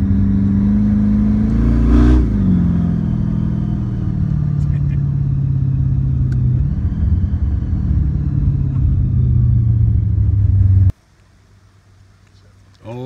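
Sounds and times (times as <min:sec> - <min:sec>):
drag car engine running: 0:02.4 - 0:10.9.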